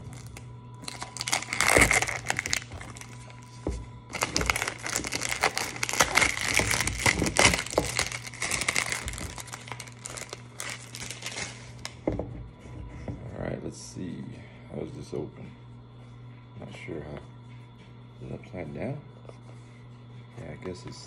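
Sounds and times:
packaging crinkling and rustling: 0:00.0 - 0:12.0.

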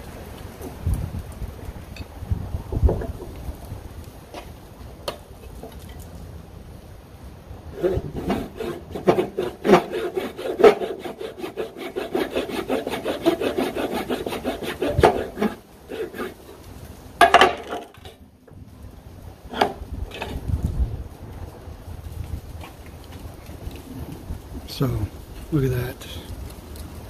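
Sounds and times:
handsaw cutting wooden board: 0:07.7 - 0:16.6.

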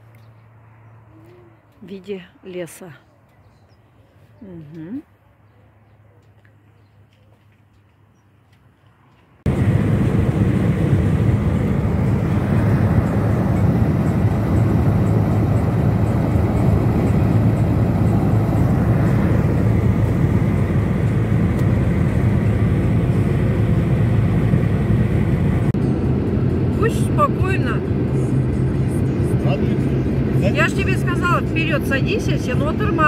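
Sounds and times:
car road noise from inside: 0:09.4 - 0:33.0.

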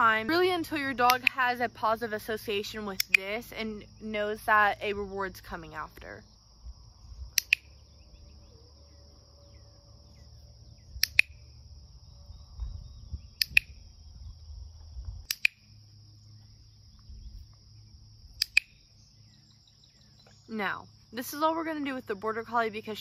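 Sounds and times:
dog training clicker clicks: 0:07.4 - 0:07.6.

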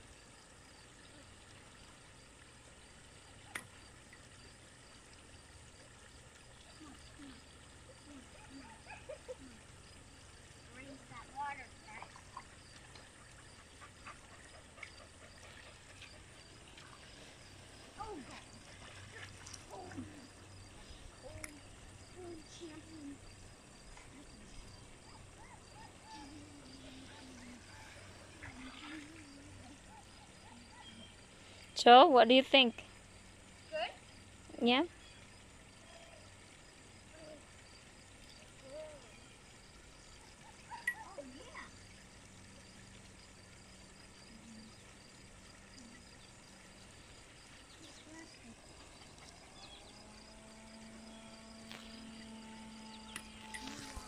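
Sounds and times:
insect chirping: 0:00.0 - 0:54.0
distant voices: 0:06.3 - 0:32.8, 0:40.4 - 0:54.0.

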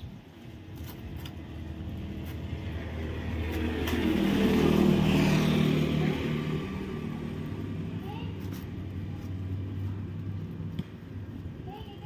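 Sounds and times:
vehicle engine passing by: 0:01.7 - 0:10.8.

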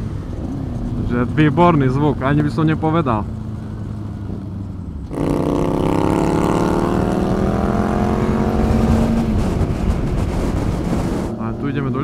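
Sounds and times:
motorcycle engine accelerating: 0:00.0 - 0:12.0
wind rushing past: 0:05.2 - 0:11.5.

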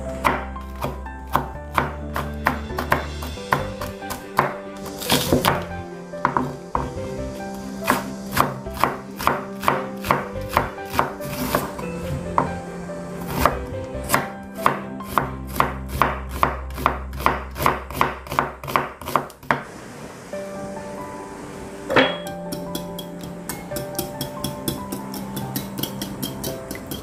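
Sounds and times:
knife chopping on cutting board: 0:00.2 - 0:07.0, 0:07.9 - 0:11.8, 0:13.3 - 0:19.6.

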